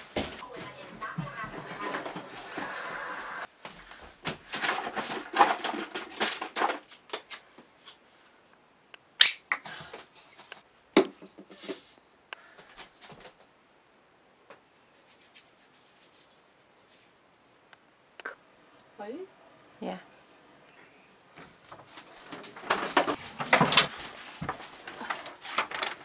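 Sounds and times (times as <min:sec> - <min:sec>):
objects rustling and clattering: 0:00.0 - 0:08.2, 0:12.6 - 0:13.5, 0:21.3 - 0:26.0
faint rubbing sounds: 0:14.6 - 0:18.2, 0:21.4 - 0:26.0.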